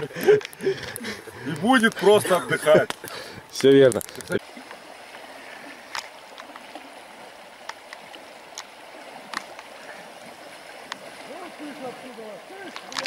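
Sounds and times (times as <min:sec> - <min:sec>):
river water rushing over rocks: 0:04.3 - 0:13.0.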